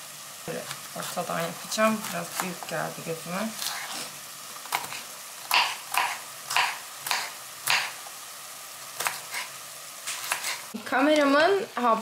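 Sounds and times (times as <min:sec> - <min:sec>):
knife chopping carrot on board: 0:05.5 - 0:08.0.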